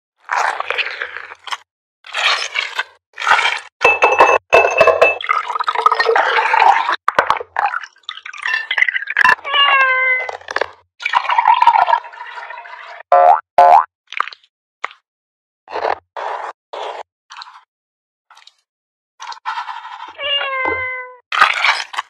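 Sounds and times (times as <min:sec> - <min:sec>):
liquid pouring and splashing: 0:00.2 - 0:03.7, 0:04.6 - 0:15.0, 0:21.3 - 0:22.0
glass and ice clinking: 0:03.8 - 0:06.2, 0:08.4 - 0:09.3.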